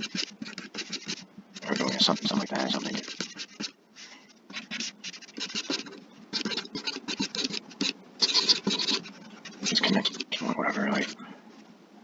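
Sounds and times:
stylus scratching on drawing tablet: 0.0 - 3.8, 4.5 - 11.2.

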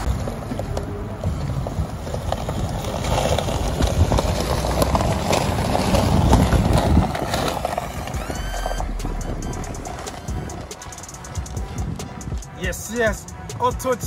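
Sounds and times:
footsteps crunching on gravel: 0.0 - 14.0
wind rumble on microphone: 0.0 - 14.0
rising electronic tones: 6.9 - 12.6.

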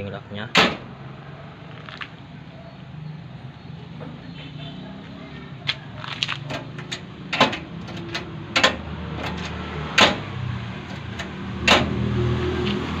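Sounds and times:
vehicle engine running low: 0.9 - 13.0
door latch clacks: 6.5 - 10.2.

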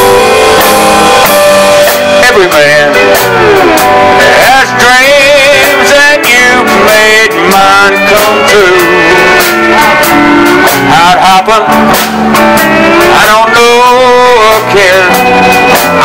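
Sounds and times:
live country band playing: 0.0 - 16.0
pedal steel guitar lead lines: 0.0 - 16.0.

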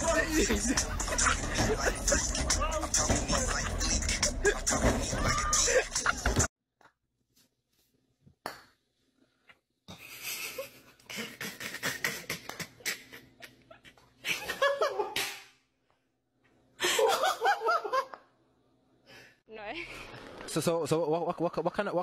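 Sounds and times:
person laughing breathily: 0.0 - 6.5, 9.9 - 14.8.

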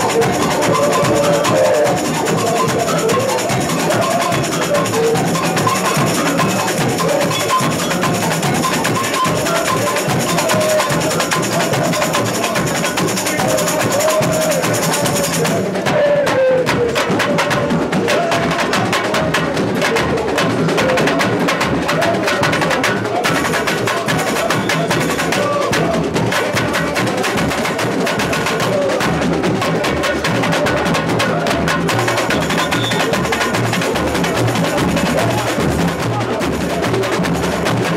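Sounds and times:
tamborins: 0.0 - 15.5, 31.5 - 36.2
metal shakers: 0.0 - 15.6.

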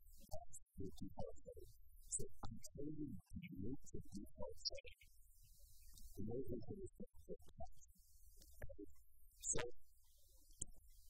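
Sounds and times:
faint click: 8.4 - 8.7.

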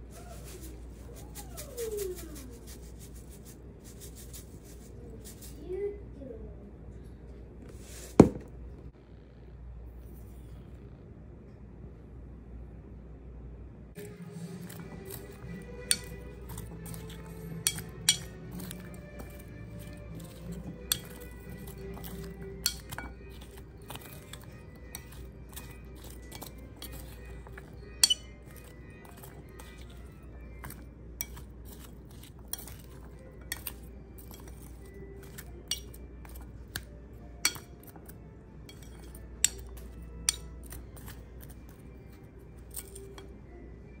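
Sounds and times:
spoon tossing salad in a bowl: 0.0 - 5.5, 14.0 - 43.4
spoon clinking against bowl: 14.0 - 43.4.

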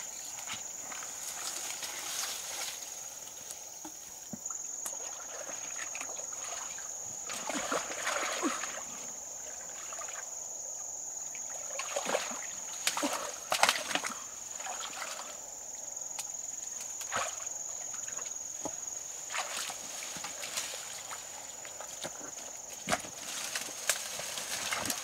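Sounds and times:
water sloshing and splashing: 4.4 - 10.4, 11.4 - 15.5, 16.8 - 25.0.

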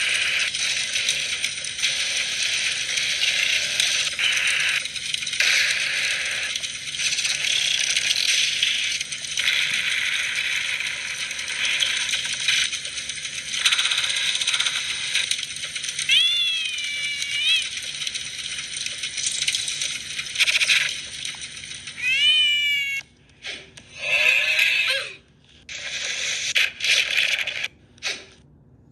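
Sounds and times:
continuous rattling noise: 0.0 - 28.6
cat meowing: 16.1 - 17.8, 22.0 - 23.1.

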